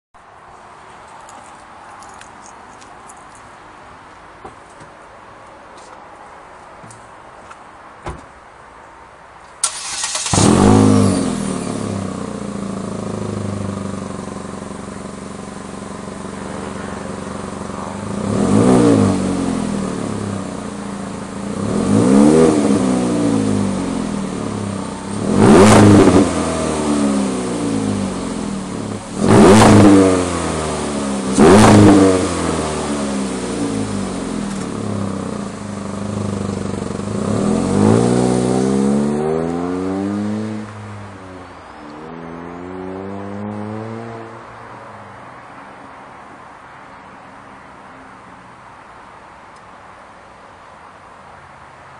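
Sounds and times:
car engine revving: 0:09.6 - 0:44.6.

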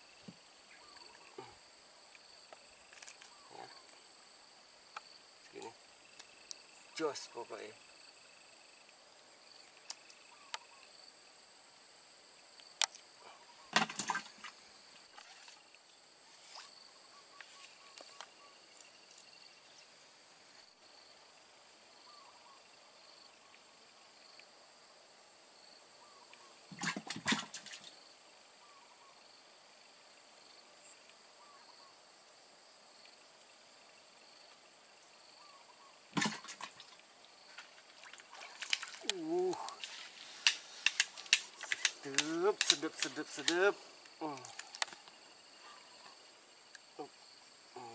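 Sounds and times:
high-pitched insect drone: 0:38.4 - 0:47.9.

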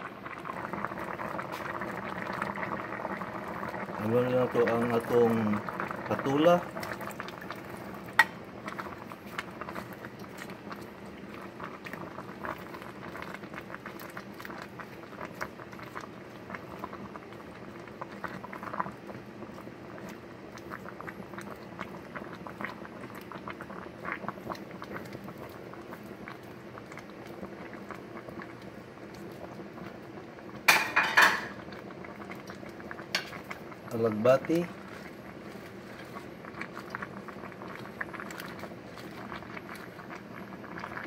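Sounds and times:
soup boiling and bubbling: 0:00.0 - 0:41.0
spatula stirring in pot: 0:34.7 - 0:40.8.

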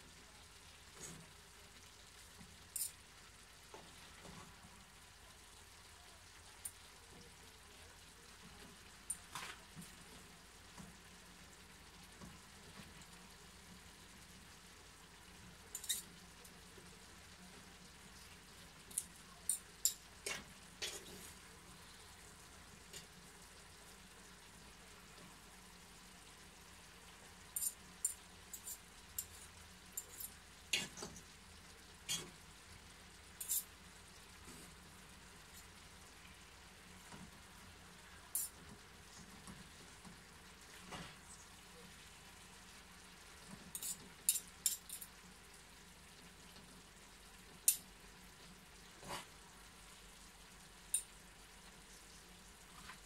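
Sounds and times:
food sizzling in frying pan: 0:00.0 - 0:53.0
fork and spatula scraping pan: 0:33.4 - 0:33.7.

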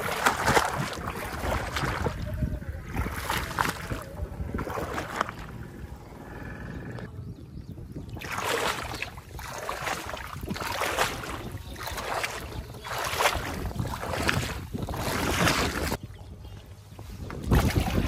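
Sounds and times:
steady low rumble: 0:00.0 - 0:07.8
wind buffeting microphone: 0:00.0 - 0:18.0.

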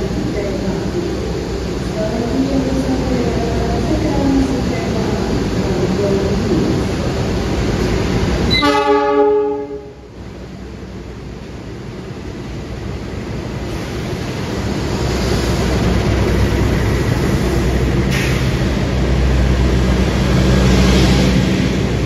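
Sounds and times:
locomotive engine rumble: 0:00.0 - 0:22.0
train horn blast: 0:08.5 - 0:10.1.

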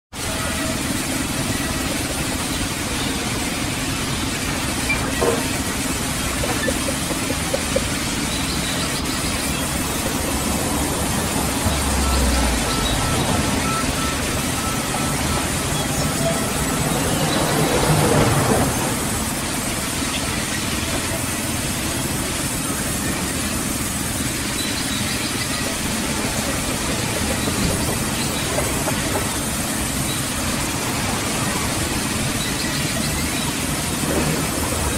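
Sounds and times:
band sawmill humming: 0:00.2 - 0:34.9.

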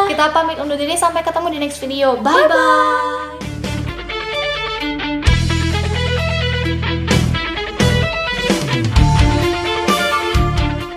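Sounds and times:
background music with guitar: 0:02.3 - 0:10.9.

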